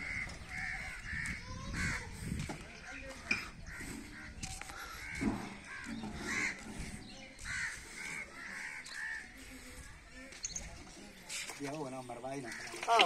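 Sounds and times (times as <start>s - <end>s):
crows cawing: 0.0s - 2.1s, 3.6s - 9.4s, 12.4s - 13.0s.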